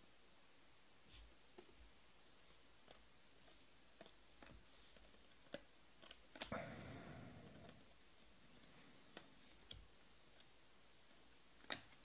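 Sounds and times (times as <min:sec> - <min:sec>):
soft rustling: 0:01.0 - 0:11.3.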